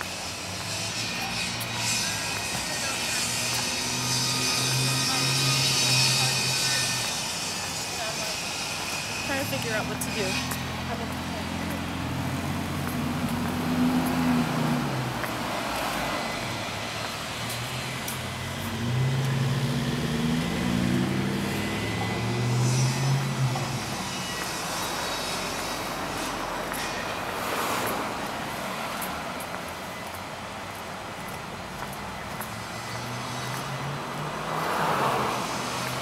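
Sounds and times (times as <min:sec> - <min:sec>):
traffic noise: 0:00.0 - 0:36.0
vehicle engine passing: 0:09.2 - 0:26.5, 0:32.5 - 0:36.0.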